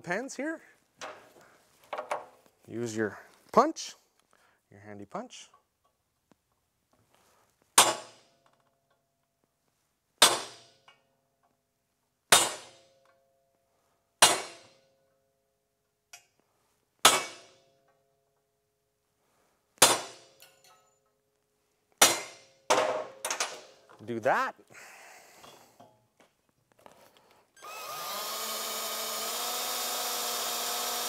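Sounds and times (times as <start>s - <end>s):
hammer striking metal punch: 10.2s - 10.8s, 12.3s - 12.8s, 14.2s - 14.8s, 17.1s - 17.6s, 19.8s - 20.5s, 22.0s - 23.5s.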